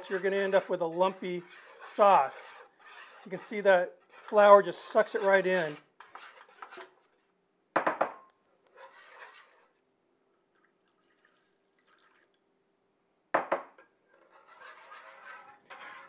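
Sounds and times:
faint liquid sounds: 0:08.8 - 0:13.0
milk pouring into pan: 0:08.9 - 0:12.5.

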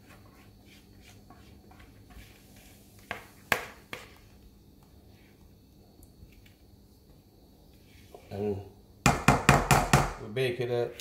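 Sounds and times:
spatula scraping batter: 0:00.0 - 0:04.4
sharp knocks on pan: 0:09.0 - 0:10.2.

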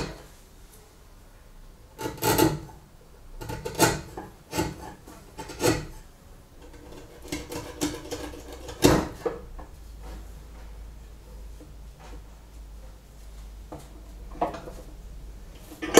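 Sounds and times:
chisel scraping wood: 0:02.0 - 0:02.8, 0:03.4 - 0:09.5.

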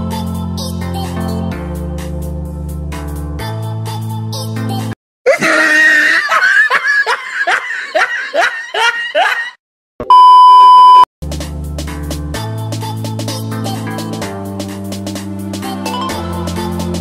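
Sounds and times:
background music: 0:00.0 - 0:05.0, 0:11.2 - 0:17.0
high-pitched laugh: 0:05.3 - 0:09.6
loud steady beep: 0:10.1 - 0:11.1.

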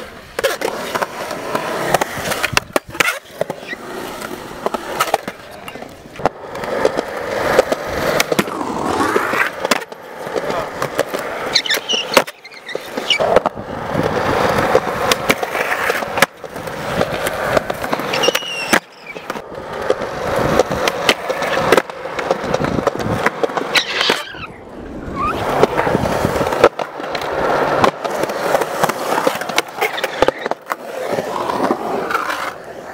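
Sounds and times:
skateboard clacks: 0:00.0 - 0:32.9
skateboard wheels rolling on concrete: 0:00.0 - 0:32.9
short high squeaks: 0:11.5 - 0:13.3, 0:18.1 - 0:19.2, 0:23.7 - 0:25.4.

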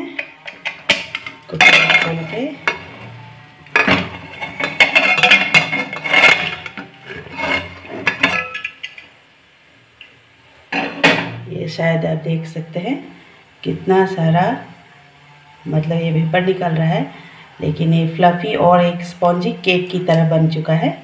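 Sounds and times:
metal lid scraping and clinking: 0:00.2 - 0:09.1.

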